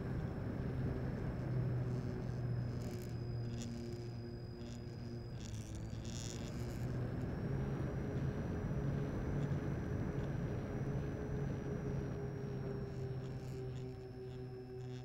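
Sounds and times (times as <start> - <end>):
model plane electric motor and propeller: 0.0 - 15.0
thin high whine: 0.0 - 15.0.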